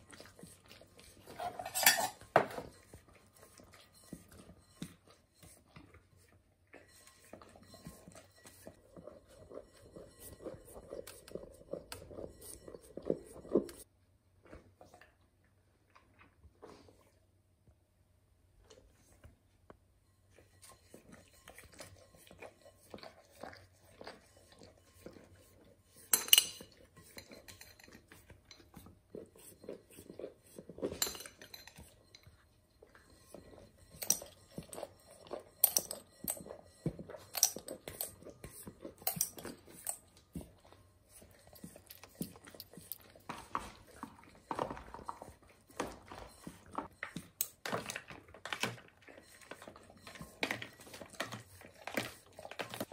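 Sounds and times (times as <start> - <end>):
metal spoon clinking on plastic tubs: 1.2 - 3.1, 25.9 - 52.9.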